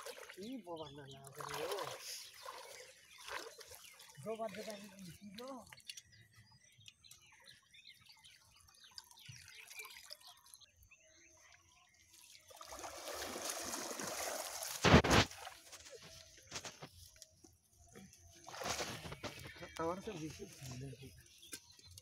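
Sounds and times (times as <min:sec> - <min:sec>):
water draining through net: 0:00.0 - 0:06.0, 0:12.5 - 0:15.8
water sloshing around legs: 0:00.0 - 0:10.7, 0:12.0 - 0:19.6
short loud burst of noise: 0:14.8 - 0:15.3.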